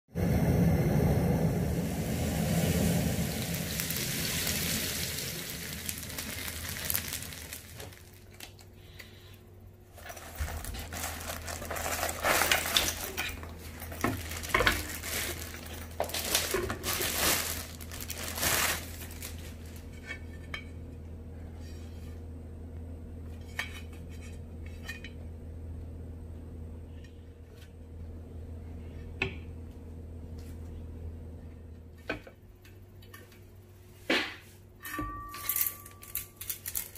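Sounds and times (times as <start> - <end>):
meat sizzling on a griddle: 1.8 - 7.8
plastic wrapping crinkling: 2.8 - 8.8, 9.9 - 19.9, 35.6 - 36.9.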